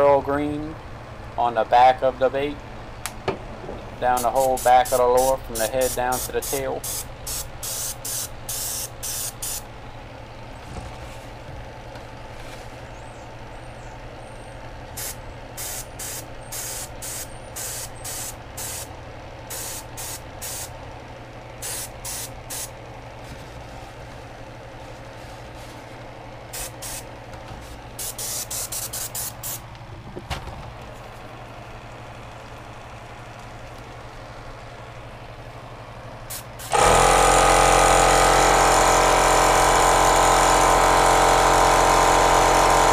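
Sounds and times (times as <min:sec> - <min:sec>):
steady low hum: 0:00.0 - 0:36.8
airbrush spraying hiss: 0:04.1 - 0:09.6, 0:15.0 - 0:18.9, 0:19.5 - 0:20.7, 0:21.6 - 0:22.7, 0:26.5 - 0:27.0, 0:27.6 - 0:29.6.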